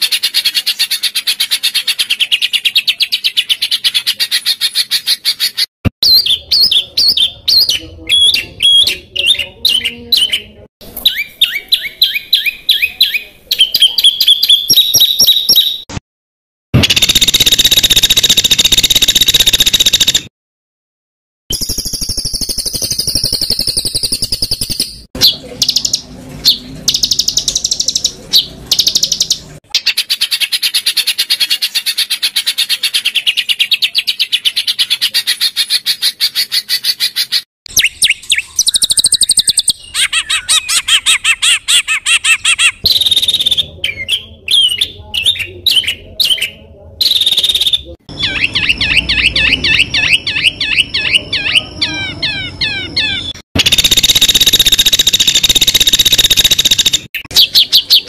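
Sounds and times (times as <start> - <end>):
songbird harsh calls: 25.2 - 58.0.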